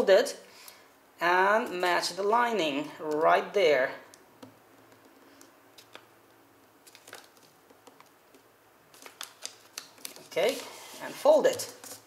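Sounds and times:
paper crackling: 6.8 - 12.0
paper rustling: 6.8 - 12.0.

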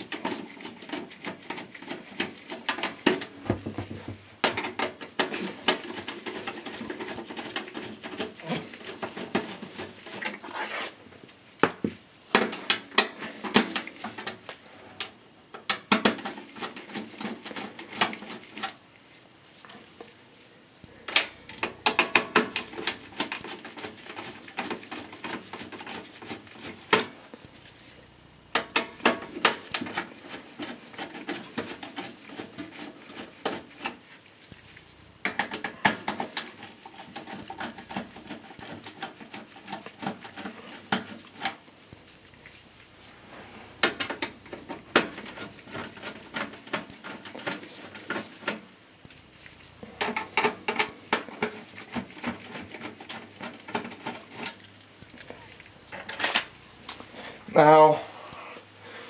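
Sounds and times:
handling noise: 2.8 - 5.8, 33.8 - 57.4.

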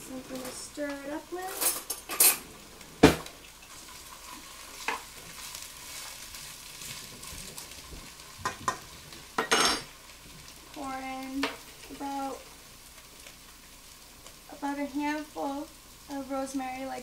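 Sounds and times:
potatoes and onions sizzling: 0.0 - 17.0.

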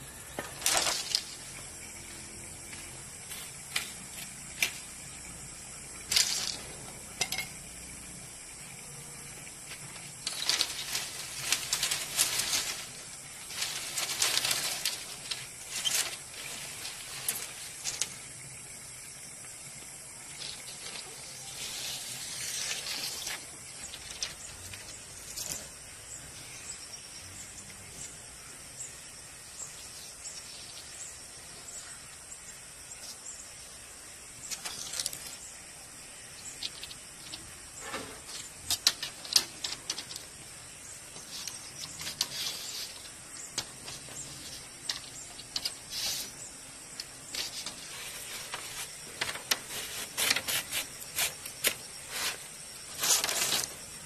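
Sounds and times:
bamboo strips clattering on concrete: 0.2 - 7.8, 8.6 - 18.5, 20.2 - 25.9, 34.4 - 35.4, 36.4 - 54.0.

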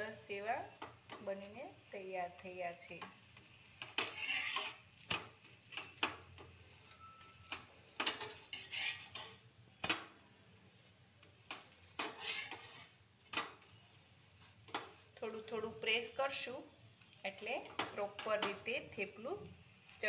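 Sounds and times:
oil sizzling: 0.0 - 20.0
spatula scraping on iron griddle: 2.9 - 10.0, 11.4 - 15.0.

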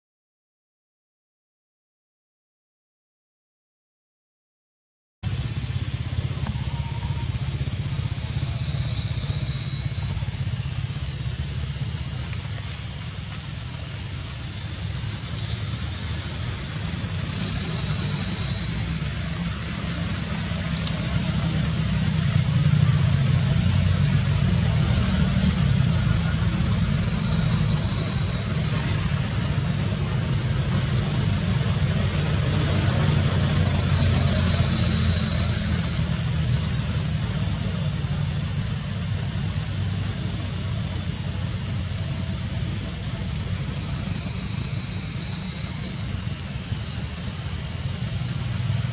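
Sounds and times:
cicada chorus drone: 5.2 - 48.9
low steady rumble: 5.6 - 40.1.

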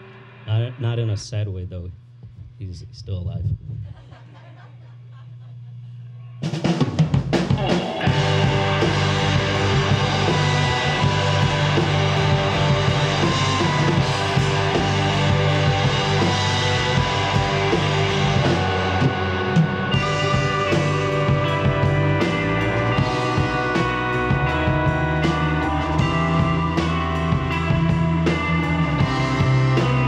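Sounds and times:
rock band playing live: 6.4 - 30.0.

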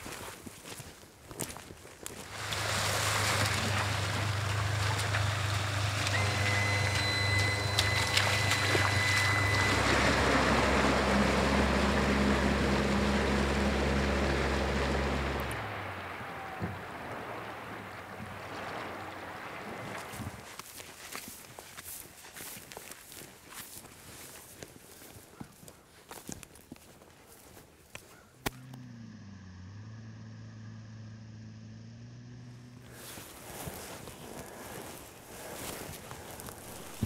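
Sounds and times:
jet boat engine running: 2.2 - 20.4, 36.5 - 37.0.

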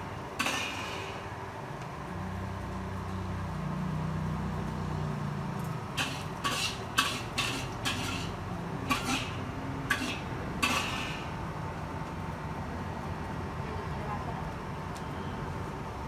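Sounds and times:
metal ladle clanking and scraping: 6.0 - 11.2.

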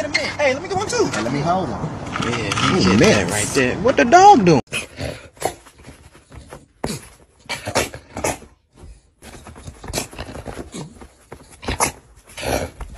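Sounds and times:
paws thumping on mattress: 5.4 - 12.9.

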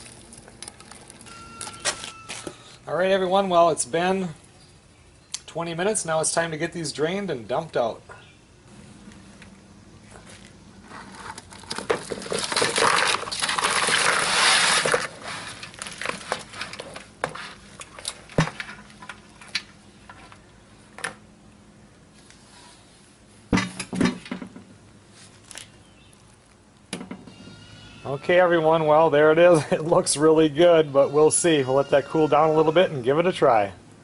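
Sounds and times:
crawfish pouring into plastic bowl: 12.4 - 16.2.

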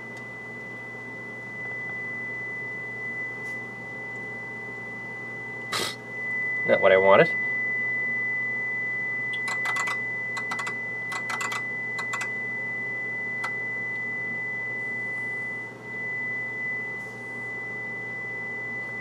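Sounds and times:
low electrical hum: 0.0 - 19.0
steady high-pitched tone: 5.8 - 19.0
push buttons clicking: 9.3 - 12.3.

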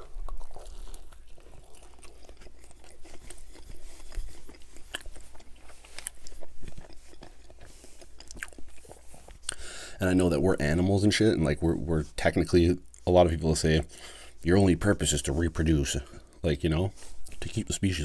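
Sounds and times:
close chewing with crunches: 0.0 - 10.8.

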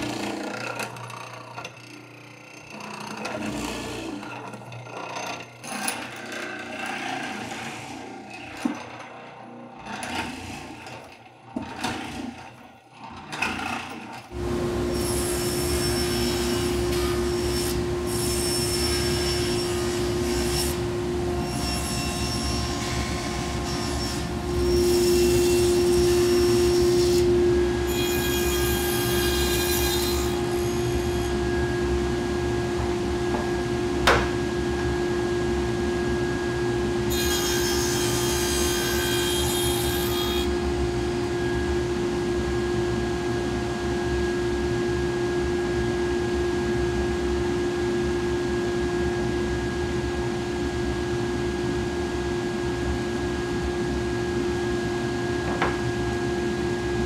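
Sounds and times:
table saw running: 14.3 - 34.9, 35.6 - 42.1.

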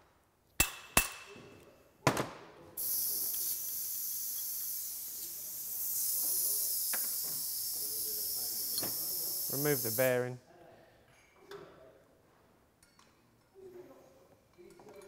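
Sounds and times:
hammer striking metal: 0.6 - 1.3
steady high hiss: 2.8 - 10.4.

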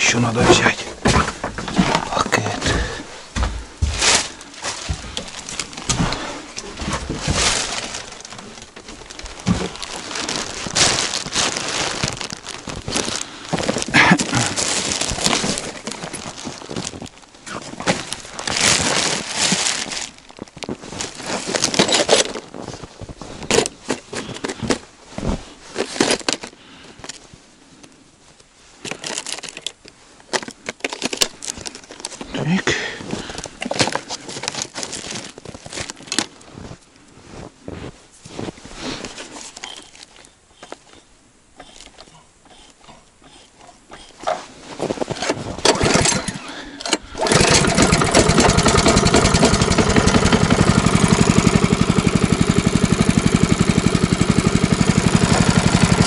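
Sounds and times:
plastic bag crinkling: 3.9 - 24.8, 28.9 - 36.8, 44.0 - 56.0.

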